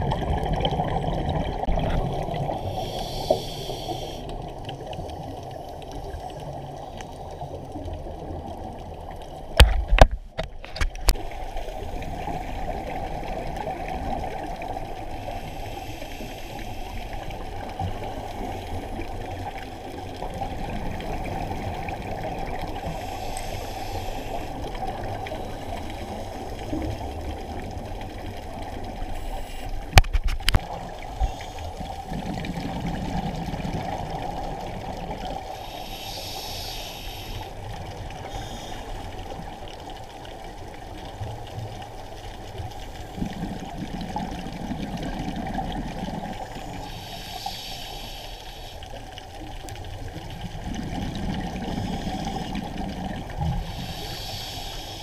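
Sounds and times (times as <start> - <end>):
steady underwater hiss: 0.4 - 10.4, 11.0 - 55.0
regulator inhale hiss: 2.5 - 4.9, 15.2 - 19.0, 22.8 - 27.0, 29.0 - 30.0, 31.1 - 31.9, 35.4 - 39.6, 46.4 - 49.2, 51.6 - 52.8, 53.4 - 55.0.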